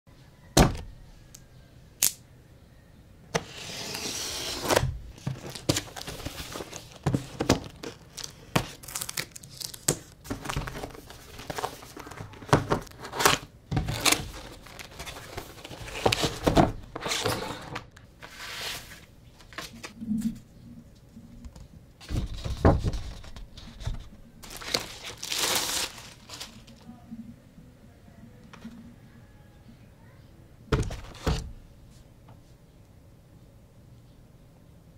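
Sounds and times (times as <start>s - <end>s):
plastic wrapping crinkling: 5.2s - 17.1s, 24.4s - 26.8s
tape tearing: 24.4s - 26.8s.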